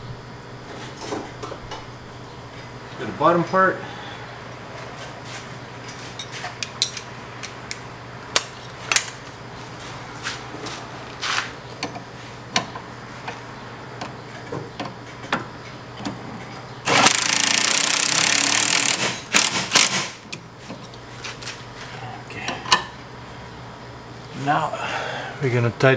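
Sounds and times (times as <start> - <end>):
wrench clicking and clinking: 16.9 - 20.0
impact gun hammering: 16.9 - 20.2.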